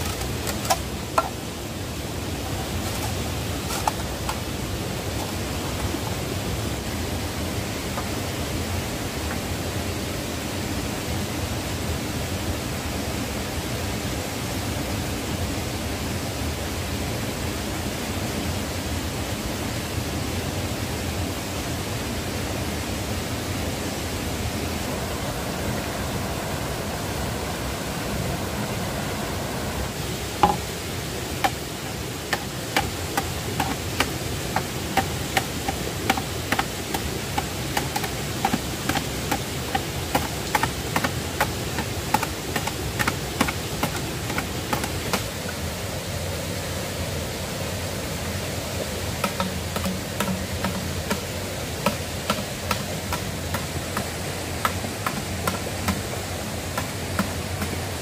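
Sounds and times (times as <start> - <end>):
stream running over rocks: 0.0 - 58.0
machete chopping bamboo: 32.3 - 45.3, 49.2 - 51.2, 51.8 - 56.0.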